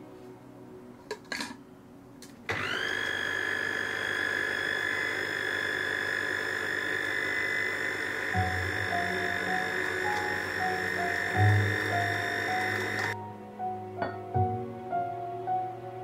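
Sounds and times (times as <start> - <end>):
food processor motor whining: 2.5 - 13.2.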